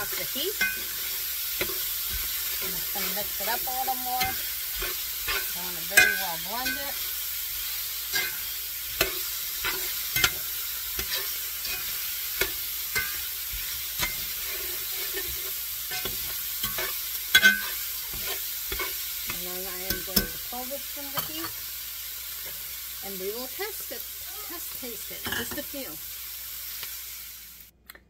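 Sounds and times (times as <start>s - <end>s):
meat sizzling in a pan: 0.0s - 27.7s
utensil clacking against pan: 8.1s - 20.4s.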